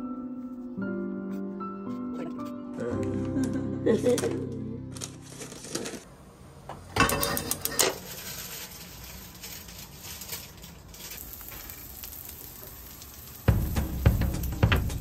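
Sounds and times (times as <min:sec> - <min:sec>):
meat pieces clattering into pan: 0:06.9 - 0:11.8
meat sizzling in a frying pan: 0:08.0 - 0:15.0.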